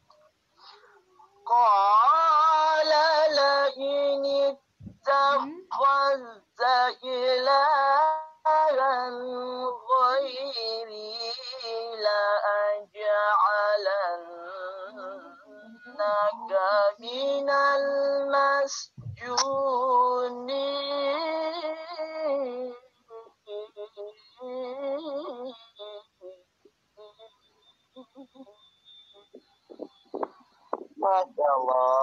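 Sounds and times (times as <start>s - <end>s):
person chanting melodically: 29.2s - 32.0s.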